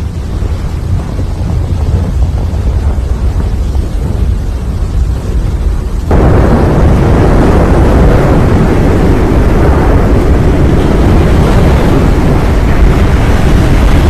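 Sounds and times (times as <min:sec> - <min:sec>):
volcano roaring: 0:00.0 - 0:14.0.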